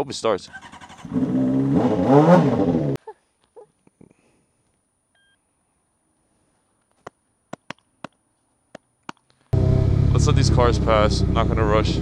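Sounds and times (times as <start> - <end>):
motorcycle engine revving: 0.5 - 3.0, 9.6 - 12.0.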